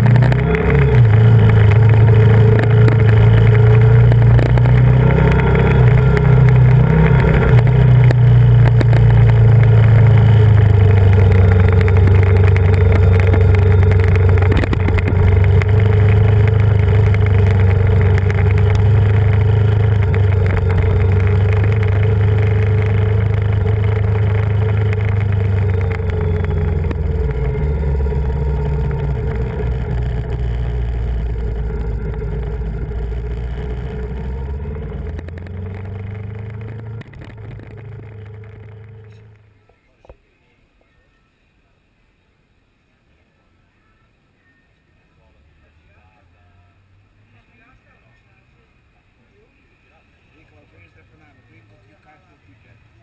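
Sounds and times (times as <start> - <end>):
motorcycle engine running: 0.0 - 39.8.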